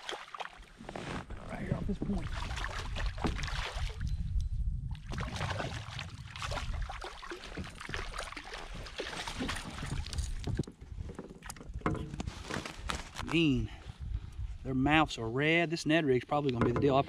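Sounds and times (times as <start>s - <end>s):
fish splashing and thrashing: 0.0s - 0.8s, 2.1s - 4.1s, 4.9s - 13.2s
water sloshing: 1.6s - 4.1s, 4.9s - 12.8s.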